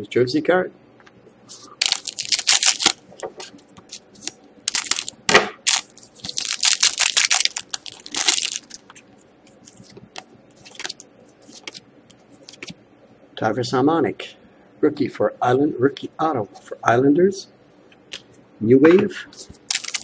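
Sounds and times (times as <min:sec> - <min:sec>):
cards being handled: 0:01.5 - 0:05.1, 0:05.7 - 0:12.8, 0:19.4 - 0:20.0
foil wrapper tearing and crinkling: 0:01.8 - 0:03.0, 0:03.9 - 0:08.9, 0:10.6 - 0:11.8, 0:19.6 - 0:20.0.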